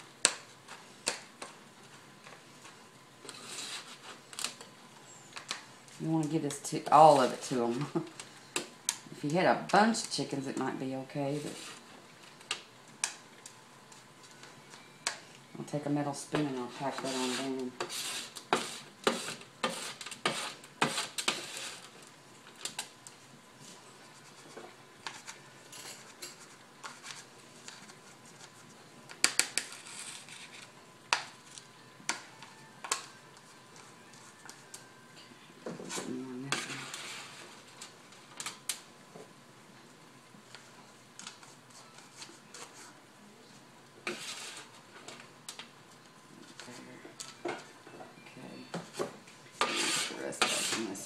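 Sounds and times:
metal spoon scraping metal pan: 16.6 - 21.8, 49.6 - 51.0.

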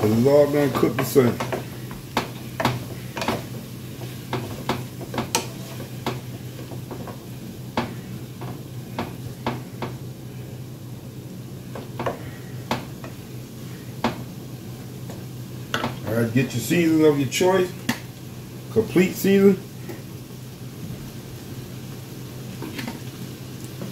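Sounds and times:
spatula scraping and knocking pan: 0.0 - 10.0
vegetables sizzling in skillet: 0.0 - 23.9.

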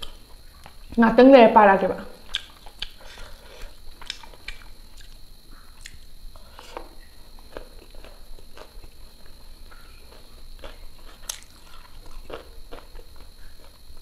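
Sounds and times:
chewing and lip smacks: 2.2 - 5.2, 5.8 - 9.3, 10.1 - 13.8.

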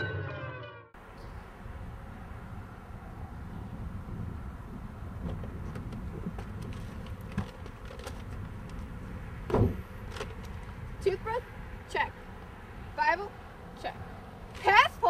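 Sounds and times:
car door thump: 9.5 - 9.8.

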